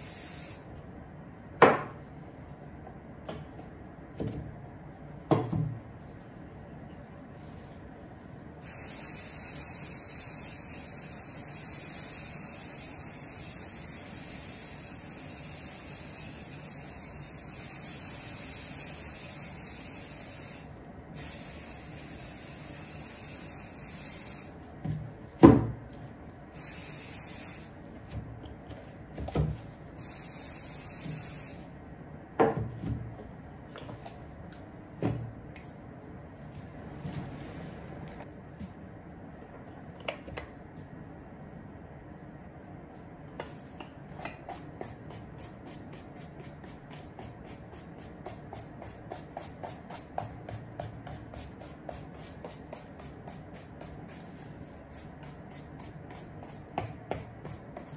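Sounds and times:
aerosol spray can hissing: 0.0s - 0.6s, 8.6s - 24.6s, 26.5s - 27.7s, 30.0s - 31.6s.

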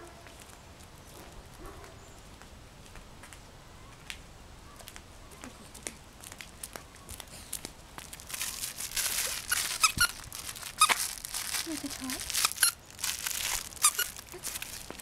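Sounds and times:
flip-flop footsteps on concrete: 0.0s - 3.4s, 9.5s - 11.2s, 13.5s - 15.0s
dog toy crinkling: 5.8s - 15.0s.

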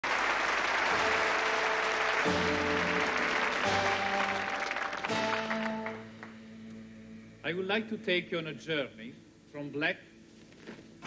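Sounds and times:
audience applauding: 0.0s - 6.4s
music of long held chords: 0.8s - 7.7s.

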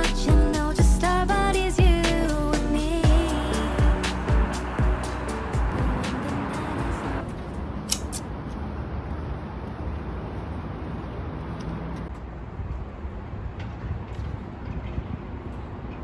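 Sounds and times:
background music: 0.0s - 7.2s
street traffic hum: 0.0s - 16.0s.

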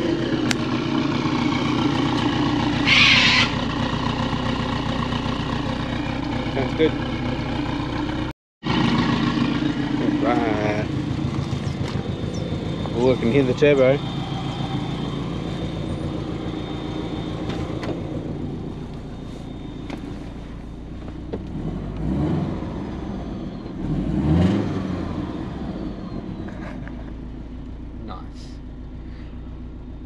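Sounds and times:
car engine idling and revving: 0.0s - 30.0s.

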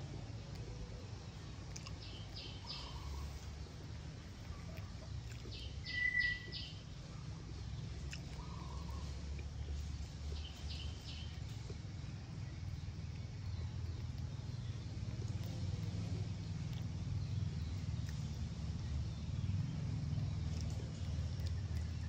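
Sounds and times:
small birds chirping: 0.0s - 22.0s
steady low hum: 0.0s - 22.0s
clear whistle: 5.9s - 6.5s.

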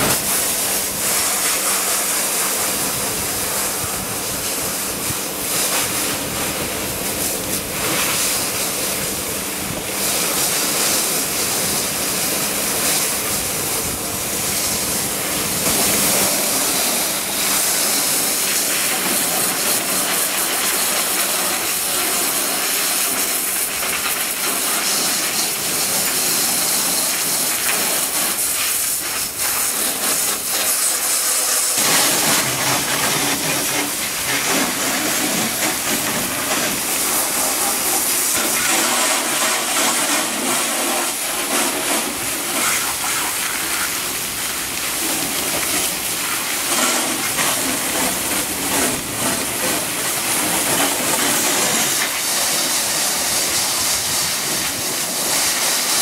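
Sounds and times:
pressure washer spraying water: 0.0s - 56.0s.

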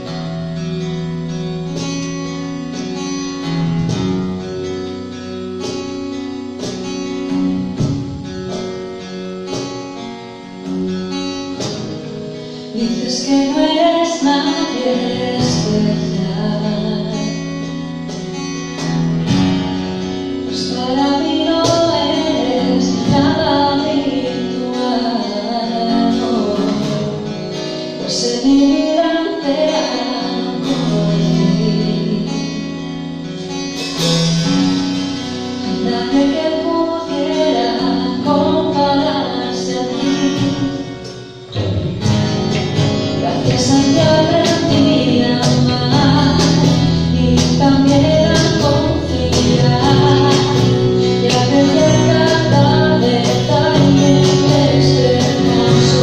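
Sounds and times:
acoustic guitar picking and strumming: 0.0s - 56.0s
bass guitar: 0.0s - 56.0s
woman singing: 12.5s - 18.2s, 20.4s - 33.0s, 35.4s - 41.2s, 43.0s - 56.0s.

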